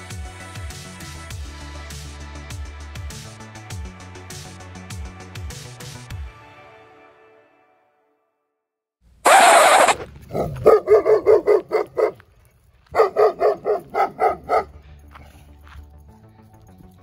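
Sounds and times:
dog barking: 9.3s - 12.3s, 12.9s - 14.9s.

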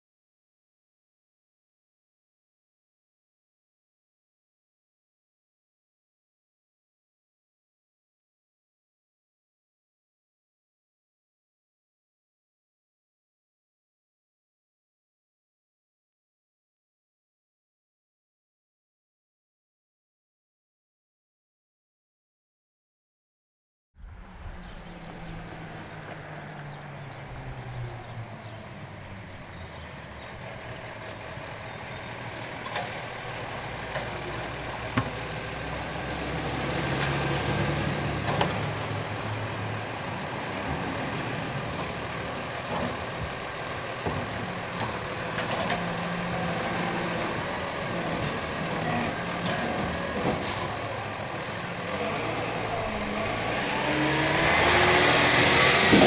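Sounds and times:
garbage truck engine running: 24.0s - 54.6s
air brake hiss: 50.4s - 51.7s.

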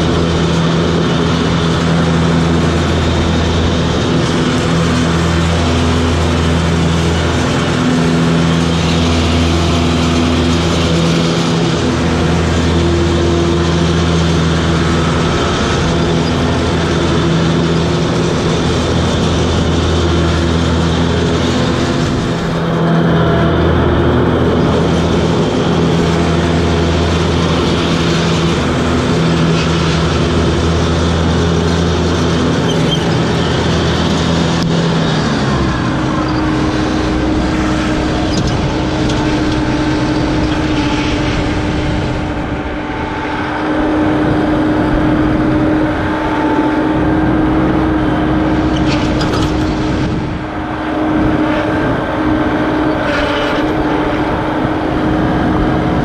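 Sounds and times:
mower engine running: 0.0s - 56.0s.

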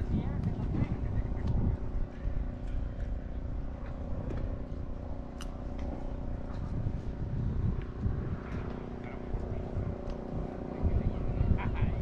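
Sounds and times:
distant engine hum: 0.0s - 12.0s
low rumble: 0.0s - 12.0s.

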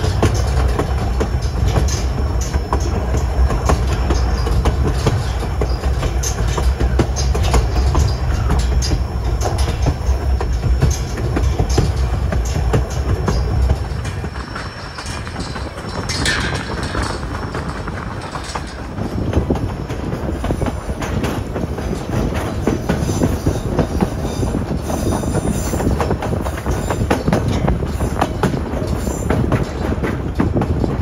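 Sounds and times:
train wheels rumbling and clattering: 0.0s - 31.0s.

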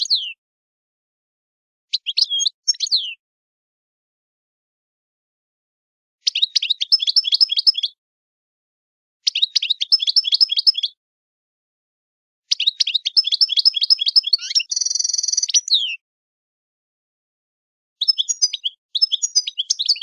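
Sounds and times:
songbird singing rapid chirps: 0.0s - 0.4s, 1.9s - 3.2s, 6.2s - 8.0s, 9.2s - 11.0s, 12.5s - 16.0s, 18.0s - 20.0s
buzzy bird trill: 9.3s - 11.0s, 12.5s - 16.0s, 18.0s - 20.0s.

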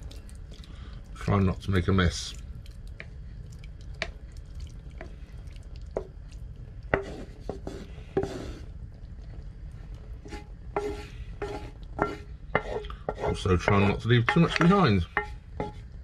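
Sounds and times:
wet sliding of mince: 2.3s - 16.0s
wooden spoon knocking frying pan: 10.8s - 15.8s.

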